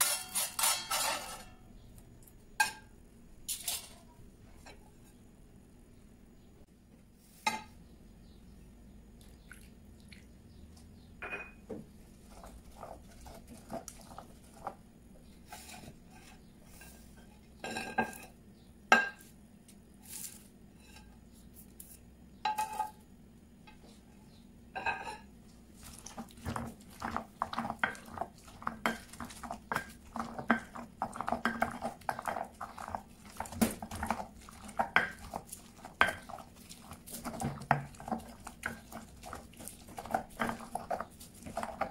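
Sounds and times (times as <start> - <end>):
stone pestle grinding: 25.8 - 41.9.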